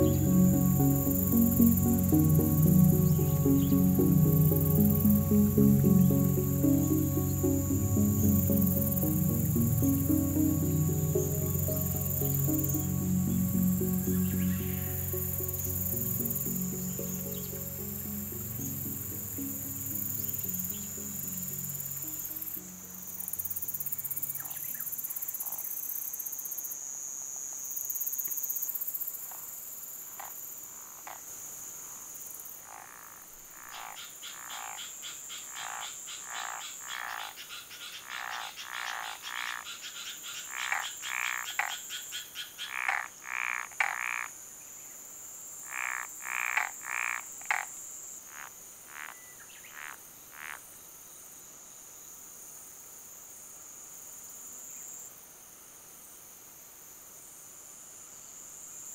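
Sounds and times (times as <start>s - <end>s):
high-pitched insect hum: 0.0s - 44.0s
frog croaking: 30.2s - 31.3s, 32.6s - 44.4s, 45.6s - 47.7s, 48.3s - 50.6s.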